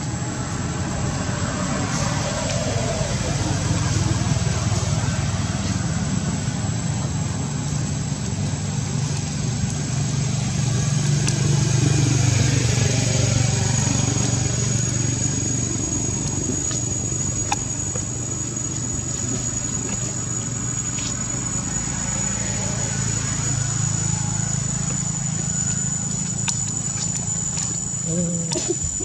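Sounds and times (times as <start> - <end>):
engine humming: 0.0 - 29.0
high whine: 0.0 - 29.0.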